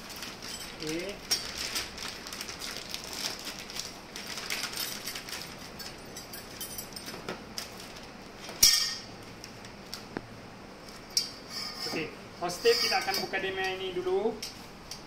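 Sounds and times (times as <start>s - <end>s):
plastic bag rustling: 0.0s - 6.1s, 7.0s - 8.6s.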